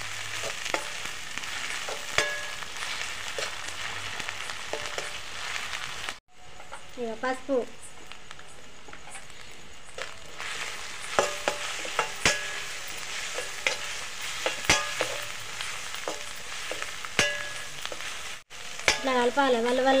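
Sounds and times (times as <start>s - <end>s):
onions sizzling in oil: 0.0s - 20.0s
spoon clinking on metal pan: 1.9s - 2.6s, 13.4s - 15.3s, 17.2s - 17.8s
metal spoon stirring: 11.0s - 18.2s.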